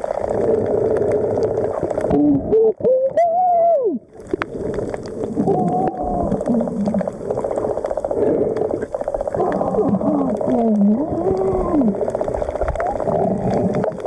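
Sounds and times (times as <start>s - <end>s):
bubbles burbling: 0.0s - 14.0s
moaning tones: 5.4s - 7.2s, 9.4s - 14.0s
underwater regulator breathing: 6.3s - 12.2s.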